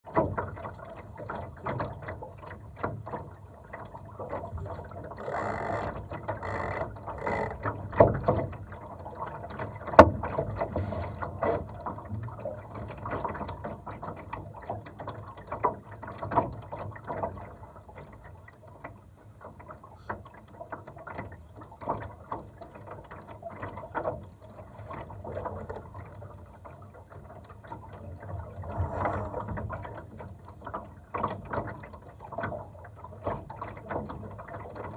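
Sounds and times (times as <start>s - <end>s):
water lapping against hull: 0.0s - 34.9s
rigging clicks and knocks: 4.3s - 8.7s, 9.5s - 10.7s.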